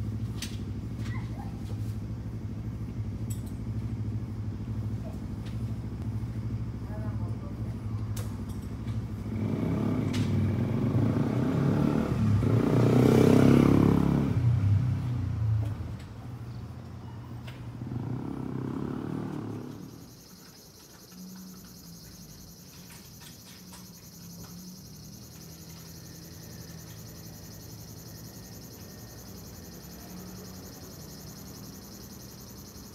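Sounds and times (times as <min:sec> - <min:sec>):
motor vehicle passing: 0:00.0 - 0:32.9
high insect trill: 0:17.9 - 0:32.9.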